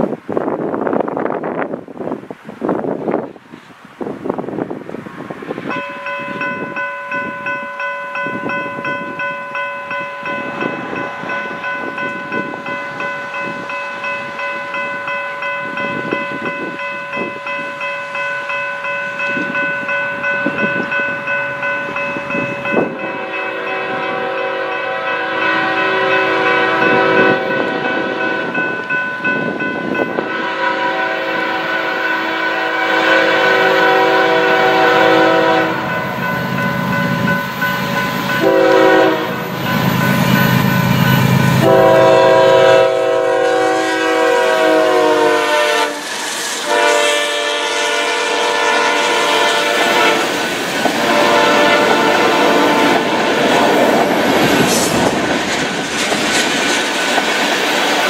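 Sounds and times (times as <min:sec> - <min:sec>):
train rumble: 0:00.0 - 0:58.0
locomotive air horn: 0:22.8 - 0:28.6, 0:30.1 - 0:36.2, 0:38.3 - 0:39.6, 0:41.5 - 0:53.8
lower horn blasts: 0:22.8 - 0:28.6, 0:30.1 - 0:36.3, 0:38.3 - 0:40.0, 0:40.8 - 0:53.8.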